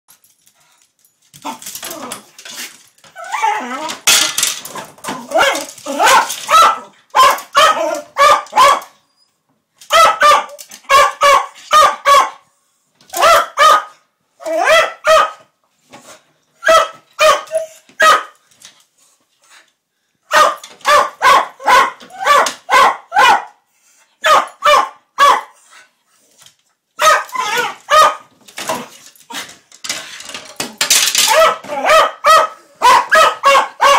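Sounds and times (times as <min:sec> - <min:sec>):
small dog barking: 0:05.4 - 0:09.0, 0:09.9 - 0:12.4, 0:13.2 - 0:14.0, 0:16.6 - 0:18.4, 0:20.3 - 0:23.6, 0:24.2 - 0:25.5, 0:27.0 - 0:28.2, 0:31.3 - 0:33.9.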